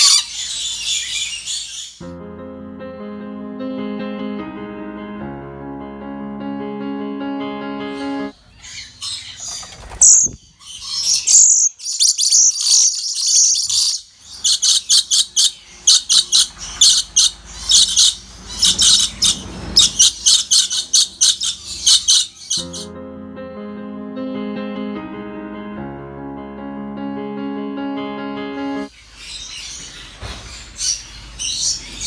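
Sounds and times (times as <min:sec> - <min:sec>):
lories screeching: 0:00.0 - 0:02.0, 0:08.6 - 0:22.8.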